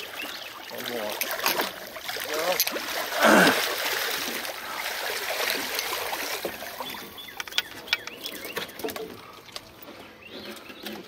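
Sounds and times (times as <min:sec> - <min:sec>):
fish thrashing and splashing: 0:00.8 - 0:09.4.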